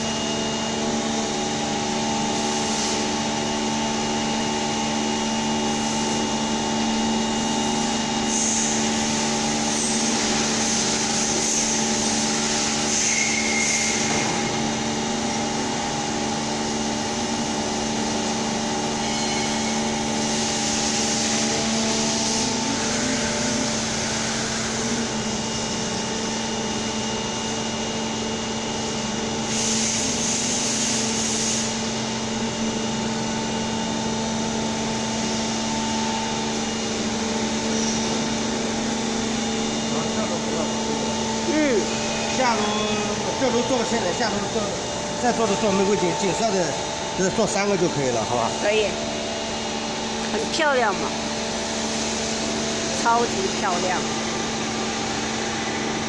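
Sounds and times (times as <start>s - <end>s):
machinery humming: 0.0s - 30.2s, 31.7s - 56.0s
machinery hiss: 7.8s - 15.1s, 18.3s - 25.2s, 29.4s - 32.0s.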